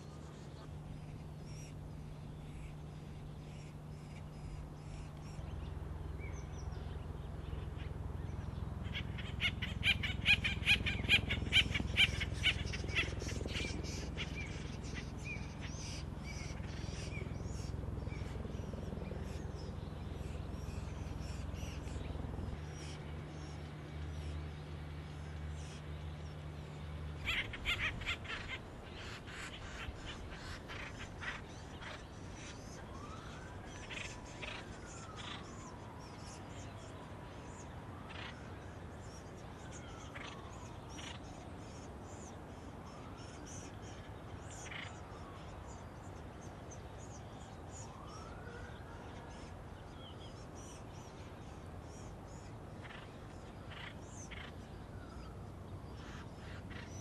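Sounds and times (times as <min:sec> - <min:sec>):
distant siren wailing: 0:00.0 - 0:57.0
woodpeckers harsh rapid calls: 0:08.8 - 0:18.6, 0:27.2 - 0:35.5.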